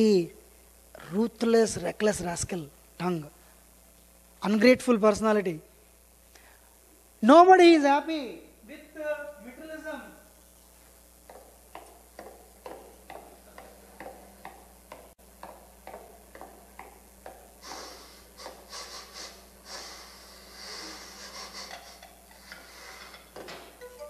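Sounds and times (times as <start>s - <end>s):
hissy percussive strikes: 11.4s - 24.0s.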